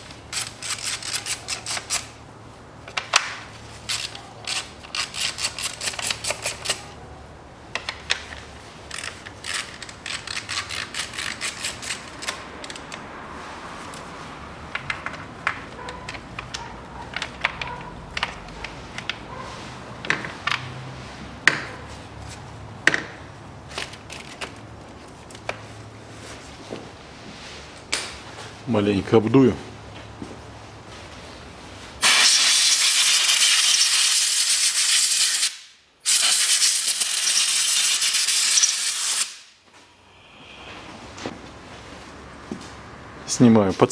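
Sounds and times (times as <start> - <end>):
hand ratchet clicking: 8.9 - 13.0
knocks from tool and parts: 20.0 - 20.7, 22.8 - 23.2.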